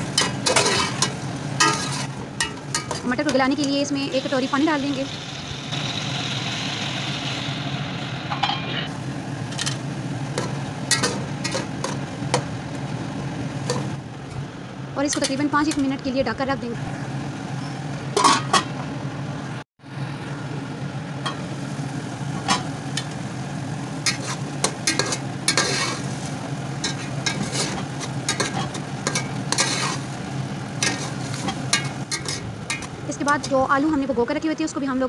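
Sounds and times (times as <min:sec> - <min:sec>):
metal spatula scraping pot: 0:00.0 - 0:03.8, 0:24.0 - 0:30.2, 0:30.8 - 0:33.5
food sizzling in oil: 0:00.0 - 0:14.0, 0:21.2 - 0:33.6.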